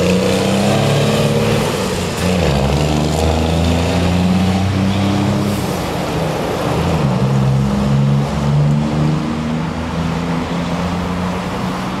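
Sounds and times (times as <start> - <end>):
tyre and road noise: 0.0 - 12.0.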